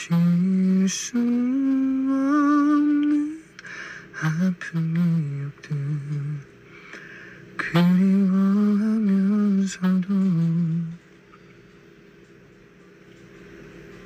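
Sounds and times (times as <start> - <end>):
man humming a melody: 0.0 - 3.6, 7.6 - 11.0.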